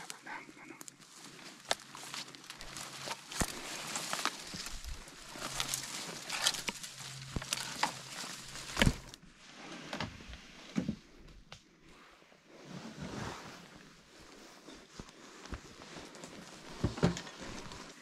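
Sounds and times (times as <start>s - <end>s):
footsteps through dry brush: 0.0s - 9.2s, 13.7s - 18.0s
twigs crackling and snapping: 0.0s - 9.2s
branches brushing clothing: 0.0s - 9.4s, 12.8s - 18.0s.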